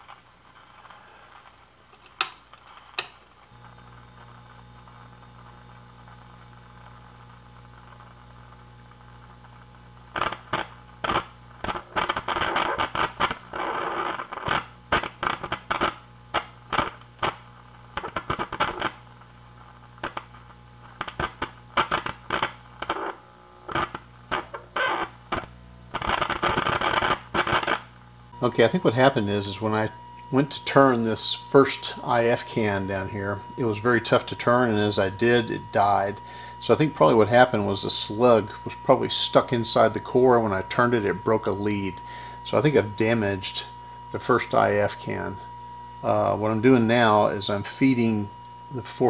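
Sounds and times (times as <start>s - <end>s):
radio crackling bursts: 0.0s - 49.0s
radio speaker hum: 0.0s - 49.0s.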